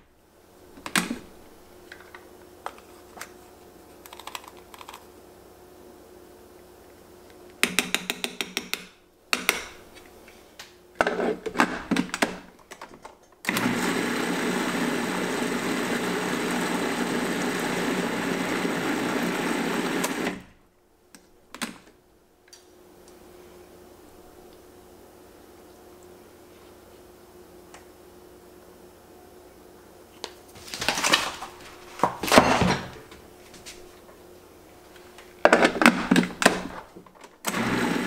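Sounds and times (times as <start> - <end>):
food processor running: 13.5 - 20.5, 37.5 - 38.0.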